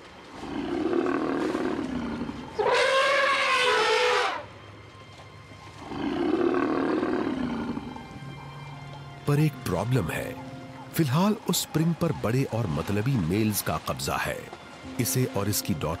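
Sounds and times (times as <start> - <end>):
elephant low calls: 0.3 - 4.5, 5.6 - 9.2
elephant trumpeting: 0.4 - 4.5, 5.7 - 9.2.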